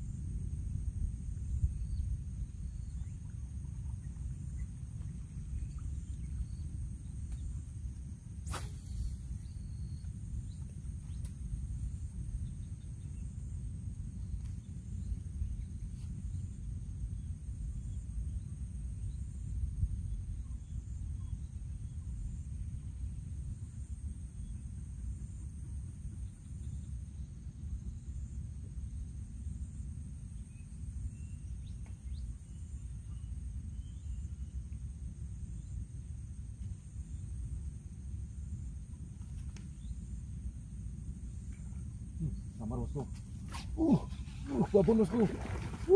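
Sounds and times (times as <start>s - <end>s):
insect chorus: 0.0s - 45.9s
low rumbling noise: 0.0s - 45.9s
faint bird chirps: 1.5s - 7.7s, 8.5s - 13.4s, 14.2s - 23.3s, 30.4s - 34.9s, 41.4s - 45.9s.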